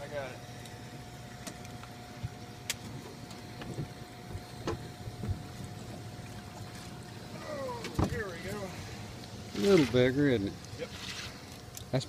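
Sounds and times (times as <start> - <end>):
faint steady hum: 0.0 - 12.0
wind: 0.0 - 12.0
water noise: 0.8 - 12.0.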